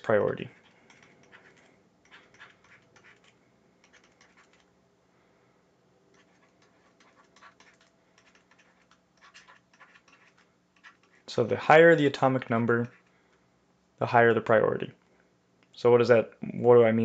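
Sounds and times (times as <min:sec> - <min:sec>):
stylus scratching on tablet: 0:00.0 - 0:04.7, 0:06.1 - 0:13.1
faint steady hum: 0:00.0 - 0:17.0.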